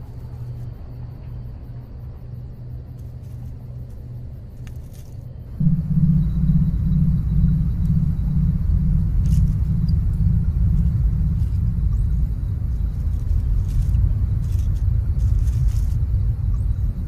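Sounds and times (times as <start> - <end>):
pulsing low hum: 5.3 - 17.0
deep low rumble: 5.5 - 17.0.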